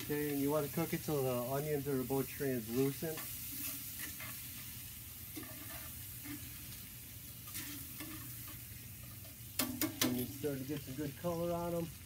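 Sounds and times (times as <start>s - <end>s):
onions sizzling in a pan: 0.0s - 12.0s
tongs clicking and scraping: 2.7s - 4.6s, 5.3s - 6.8s, 7.4s - 10.9s.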